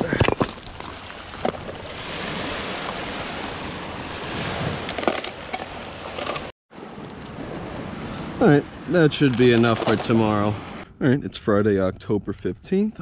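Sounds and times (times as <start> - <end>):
waves washing on shore: 1.0 - 9.1.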